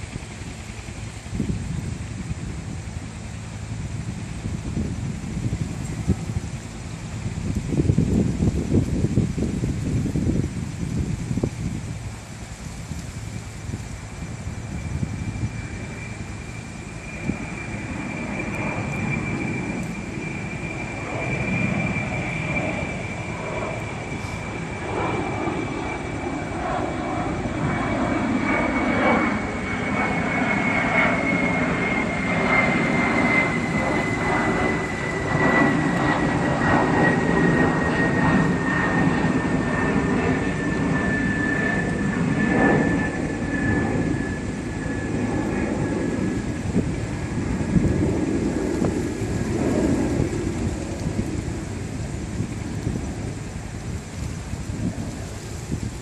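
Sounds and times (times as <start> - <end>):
airplane low rumble: 0.0 - 56.0
high jet engine whine: 0.0 - 56.0.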